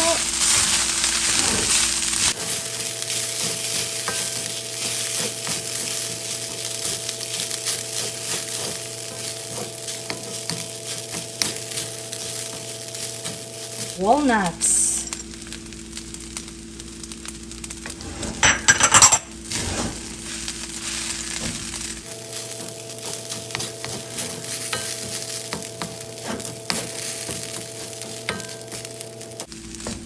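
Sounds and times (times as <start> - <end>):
food sizzling in a wok: 0.0 - 30.0
spatula scraping metal wok: 22.4 - 28.8.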